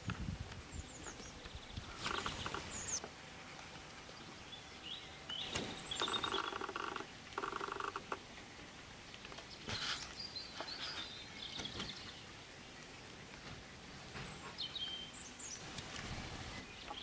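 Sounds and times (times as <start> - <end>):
starling buzzy rattling chatter: 1.9 - 4.1, 5.6 - 8.3.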